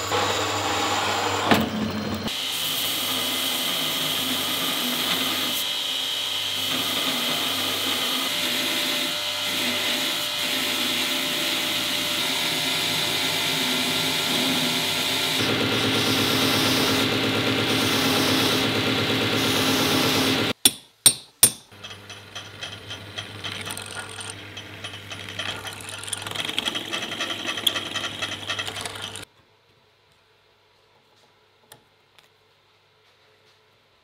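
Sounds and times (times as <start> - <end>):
drill press humming: 12.8 - 20.6, 21.7 - 29.3
belt grinder sanding steel: 21.7 - 29.3
drill bit rattling through tube: 21.7 - 29.3.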